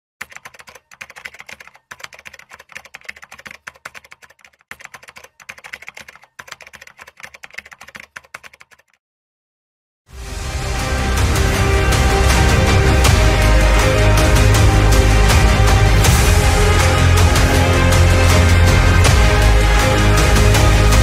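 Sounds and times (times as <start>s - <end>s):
rapid clicking: 0.2s - 9.0s
music: 10.1s - 21.0s.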